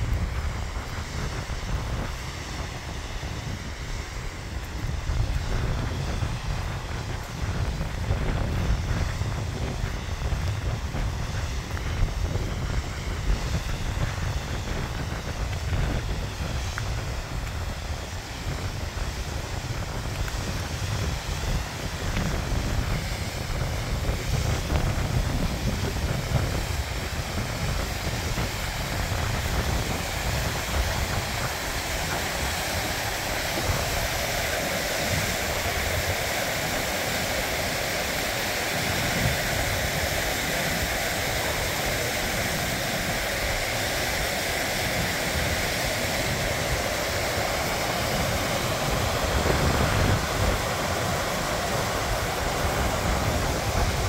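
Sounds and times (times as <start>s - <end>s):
wind buffeting microphone: 0.0s - 54.0s
river rushing over rocks: 24.7s - 54.0s.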